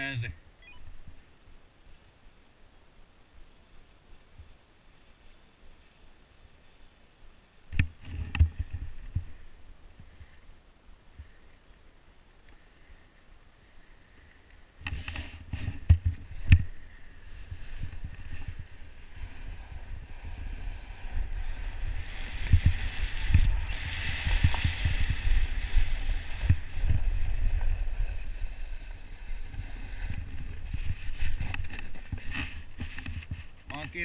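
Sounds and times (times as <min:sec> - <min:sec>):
skis sliding on snow: 0:14.9 - 0:34.0
wind buffeting microphone: 0:15.5 - 0:33.5.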